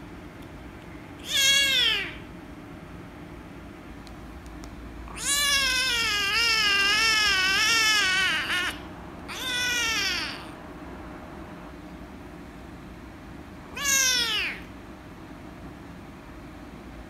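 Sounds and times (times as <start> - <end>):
kitten meowing: 1.2 - 2.2, 5.1 - 10.6, 13.7 - 14.7.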